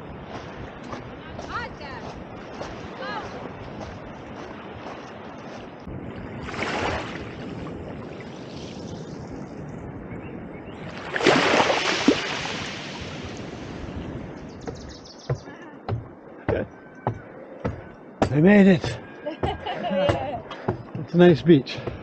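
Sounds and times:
waves washing over pebbles: 0:10.9 - 0:13.8.

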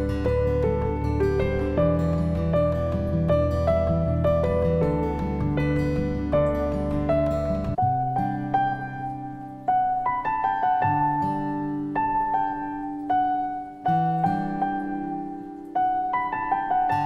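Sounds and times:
slow piano music: 0:00.0 - 0:17.0.

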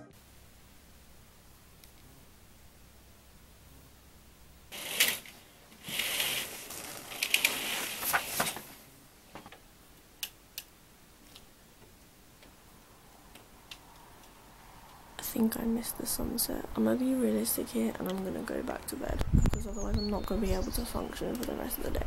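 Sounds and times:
rustling: 0:04.6 - 0:09.6
sharp clicks: 0:10.2 - 0:10.7.

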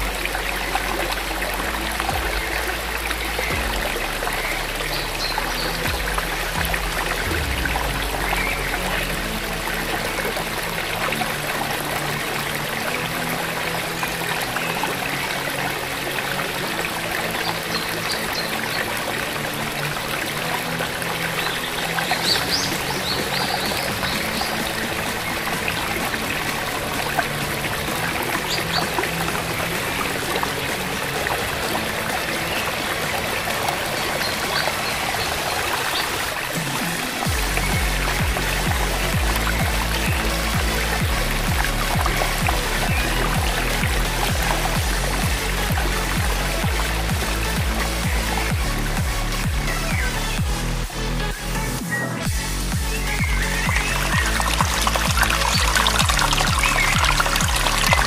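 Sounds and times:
soft background music: 0:00.0 - 0:58.0
stream water flowing: 0:00.0 - 0:58.0.

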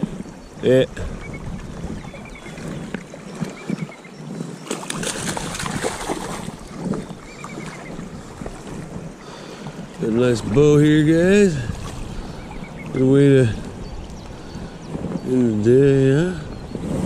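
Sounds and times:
river water running: 0:00.0 - 0:17.0
fish thrashing and splashing: 0:01.4 - 0:09.0.

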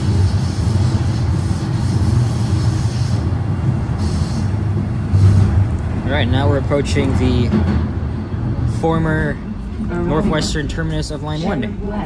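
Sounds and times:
high hiss: 0:00.0 - 0:04.6
train wheels rumbling on rail: 0:00.0 - 0:12.0.

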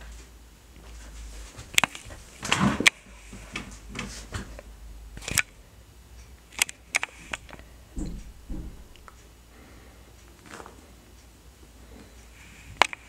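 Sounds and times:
sharp little clicks: 0:05.2 - 0:05.6, 0:06.2 - 0:09.3
dull thumps: 0:07.9 - 0:09.2.

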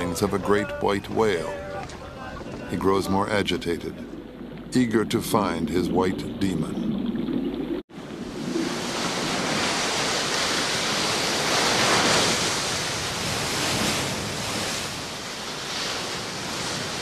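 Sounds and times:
ocean surf breaking on rocks: 0:08.0 - 0:17.0.

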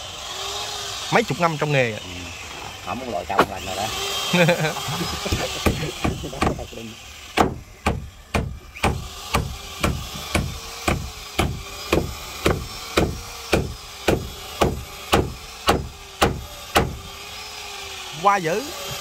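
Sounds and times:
hammer blows on wooden planks: 0:05.3 - 0:06.7, 0:07.4 - 0:17.1.

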